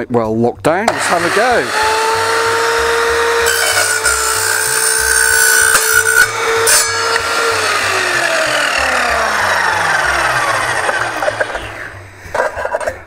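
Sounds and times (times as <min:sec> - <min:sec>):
mitre saw motor whine: 0:00.9 - 0:12.0
saw blade spinning down: 0:00.9 - 0:12.0
saw blade scraping metal: 0:00.9 - 0:13.0.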